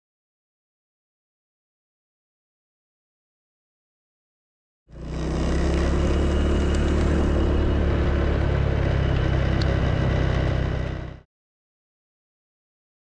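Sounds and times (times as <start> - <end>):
motorbike engine running: 4.9 - 11.2.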